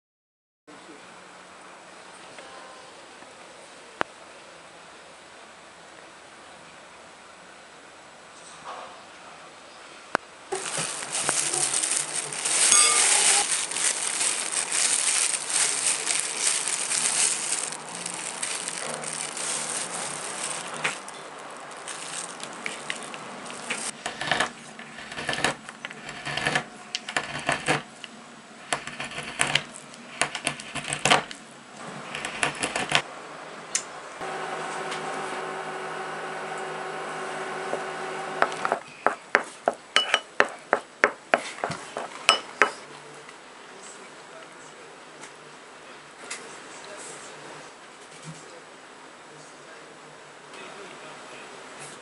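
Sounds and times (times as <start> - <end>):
knife chopping and scraping: 37.8 - 42.8.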